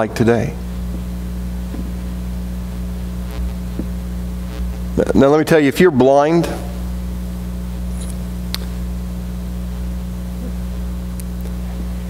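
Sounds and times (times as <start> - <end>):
electrical mains hum with hiss: 0.0 - 12.0.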